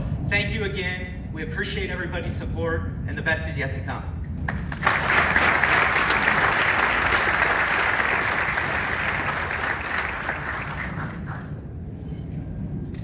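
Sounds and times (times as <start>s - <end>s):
audience applauding: 4.5s - 11.6s.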